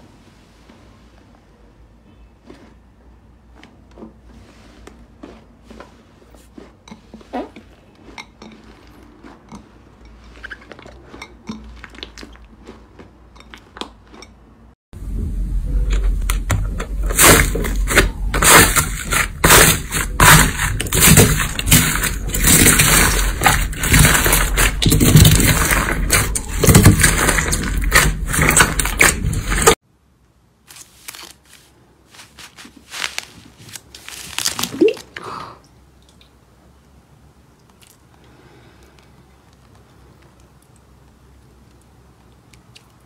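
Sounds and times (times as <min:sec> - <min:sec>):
slime crackling and popping: 0:17.0 - 0:29.8, 0:32.2 - 0:35.2.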